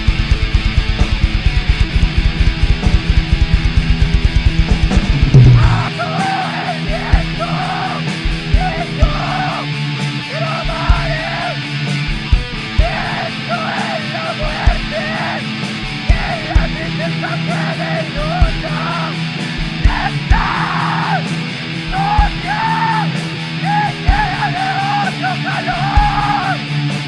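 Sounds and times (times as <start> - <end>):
low drum hits: 0.0 - 5.9
distorted guitars: 0.0 - 27.0
harsh yelled vocals: 5.1 - 26.8.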